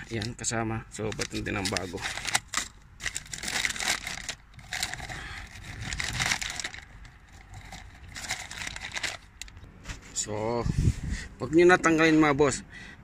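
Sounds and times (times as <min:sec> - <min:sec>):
plastic bag crinkling: 0:01.0 - 0:09.6.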